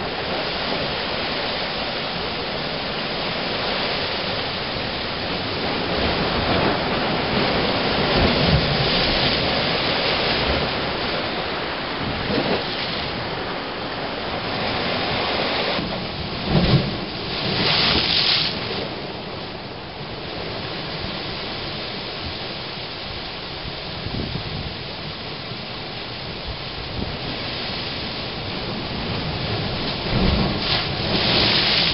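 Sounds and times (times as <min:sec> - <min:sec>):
wave crash: 0:00.0 - 0:19.2, 0:29.8 - 0:31.9
loud hissing rush of water: 0:00.0 - 0:31.9
surf rushing into blowhole: 0:00.0 - 0:31.9.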